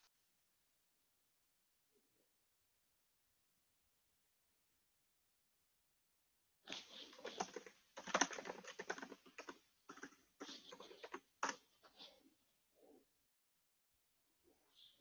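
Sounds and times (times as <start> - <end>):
computer keyboard typing: 7.1 - 11.6.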